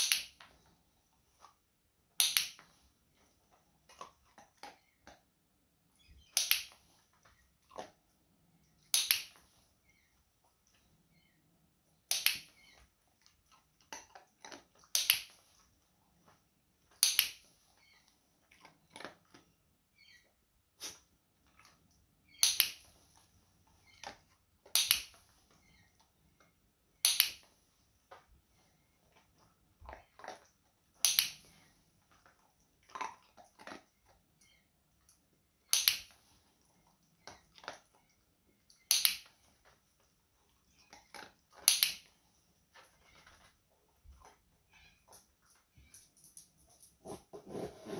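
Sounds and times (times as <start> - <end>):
clicker snapping: 2.2 - 2.6, 27.0 - 27.4.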